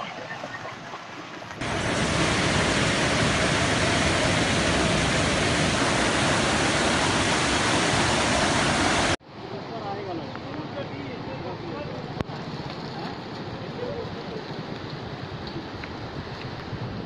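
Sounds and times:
floodwater rushing: 0.0s - 9.2s.

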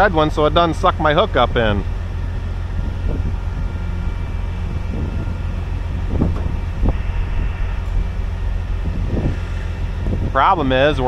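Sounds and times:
diesel engine rumbling: 0.0s - 11.0s
faint steady whine: 0.0s - 11.0s
low knocks: 5.9s - 10.2s.

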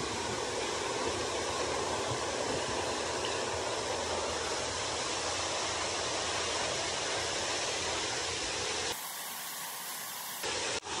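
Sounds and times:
shallow stream: 0.0s - 11.0s
waterfall rushing: 0.0s - 11.0s.

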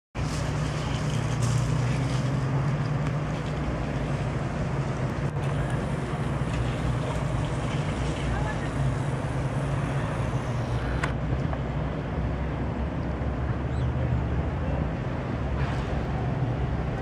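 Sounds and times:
continuous hiss: 0.2s - 11.1s
low engine hum: 0.2s - 17.0s.

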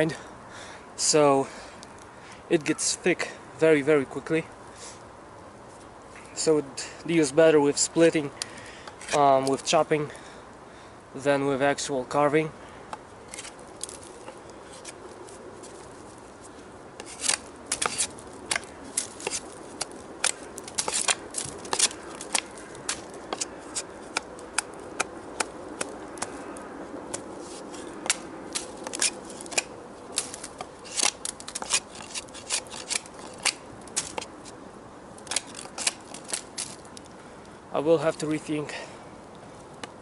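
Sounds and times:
blade whittling wooden stick: 17.0s - 26.4s.

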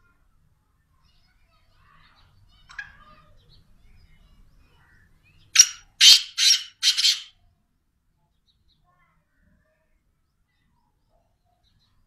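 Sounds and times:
francolin calling: 5.6s - 7.3s.

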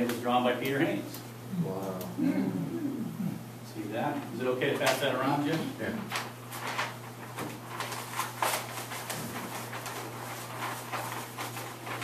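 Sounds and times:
steady low hum: 0.0s - 12.0s
paper rustling and crinkling: 4.6s - 12.0s.

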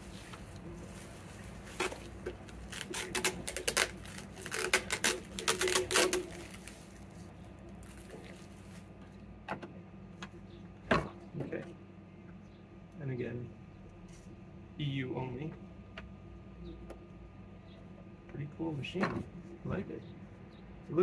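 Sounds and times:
bubble wrap crinkling: 0.0s - 8.9s.

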